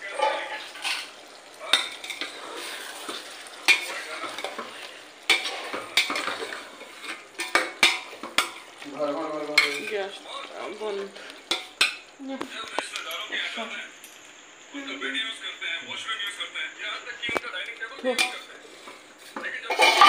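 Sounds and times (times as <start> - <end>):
food sizzling in a pot: 0.0 - 17.0, 17.6 - 20.0
spatula scraping metal pot: 0.1 - 8.8, 9.4 - 10.2, 18.2 - 20.0.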